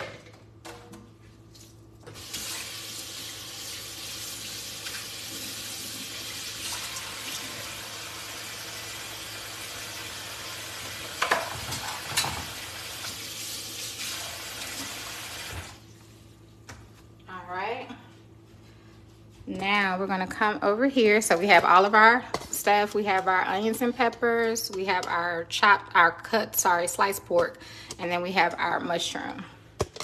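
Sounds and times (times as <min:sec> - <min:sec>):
water running into a sink: 0:02.1 - 0:15.8.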